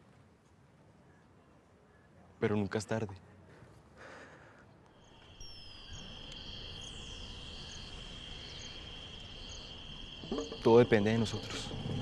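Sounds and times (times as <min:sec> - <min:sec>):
faint outdoor background noise: 0:00.0 - 0:12.0
insect trill: 0:04.9 - 0:12.0.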